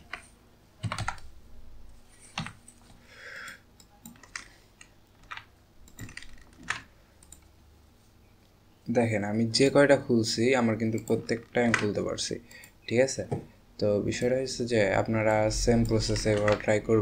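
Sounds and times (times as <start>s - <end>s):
computer keyboard typing: 0.0s - 1.3s, 2.3s - 7.5s, 15.1s - 16.9s.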